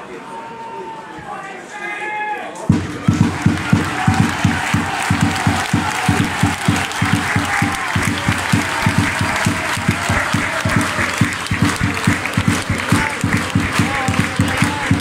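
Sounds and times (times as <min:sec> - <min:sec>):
crowd applauding: 0:02.7 - 0:15.0
hands clapping close by: 0:02.7 - 0:15.0.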